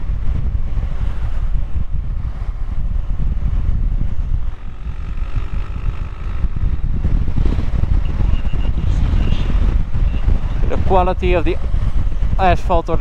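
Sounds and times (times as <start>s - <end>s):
wind buffeting microphone: 0.0s - 13.0s
motorcycle engine running: 1.7s - 11.0s.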